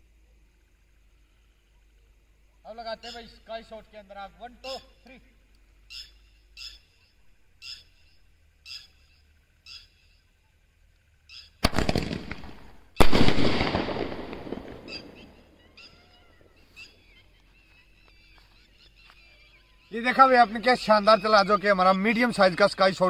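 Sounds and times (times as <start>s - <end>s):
firework bang: 11.6s - 15.4s
firework crackling: 11.6s - 15.6s
firework launch: 11.6s - 15.6s.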